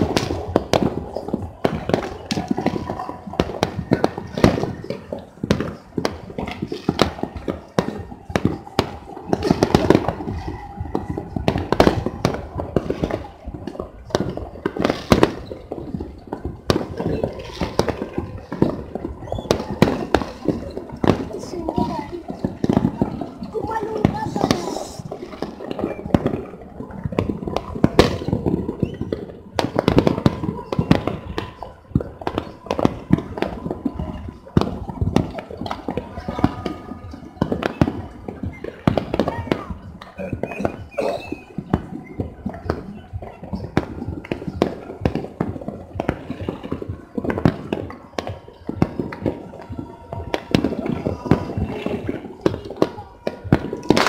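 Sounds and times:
fireworks and firecrackers banging: 0.0 - 54.0.

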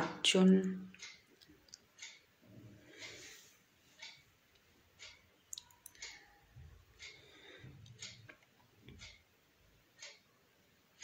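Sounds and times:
faint ticks: 4.0 - 6.3, 10.0 - 10.2.

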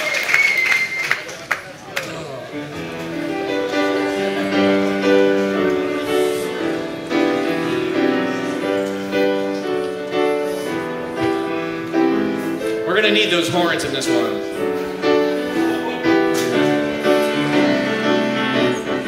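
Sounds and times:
grand piano chords: 2.1 - 19.0.

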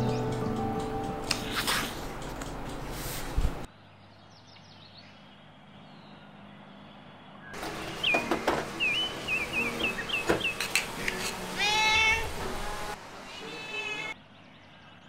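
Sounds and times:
cat chirping: 11.6 - 12.3
cat meowing: 11.6 - 12.4, 13.3 - 14.2.

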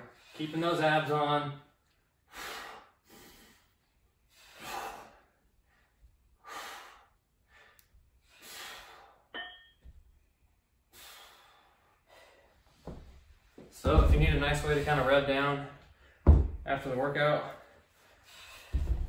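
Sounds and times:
forceful exhalations: 18.2 - 19.0.

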